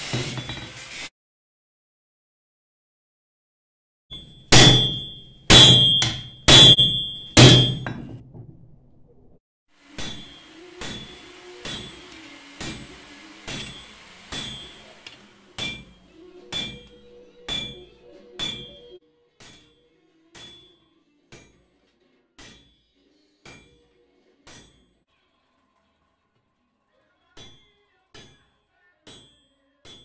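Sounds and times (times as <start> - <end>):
hammer striking metal on anvil: 4.1 - 8.1, 9.9 - 21.7, 22.4 - 23.8, 27.4 - 28.4.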